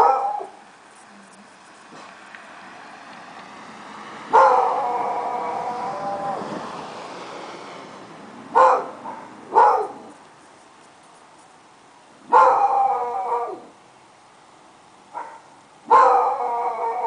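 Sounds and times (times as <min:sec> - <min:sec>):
dog barking: 0:00.0 - 0:00.6, 0:04.3 - 0:05.0, 0:08.5 - 0:10.1, 0:12.3 - 0:13.7, 0:15.1 - 0:17.0
dog howling: 0:04.3 - 0:06.6, 0:12.3 - 0:13.7, 0:15.9 - 0:17.0.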